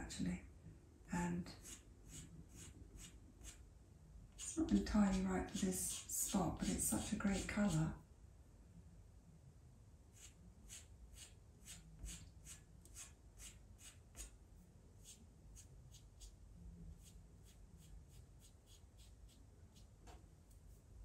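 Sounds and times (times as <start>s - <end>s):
pastel stick scratching paper: 1.6s - 3.6s, 4.4s - 7.9s, 10.1s - 14.4s, 15.0s - 16.4s, 17.0s - 20.9s.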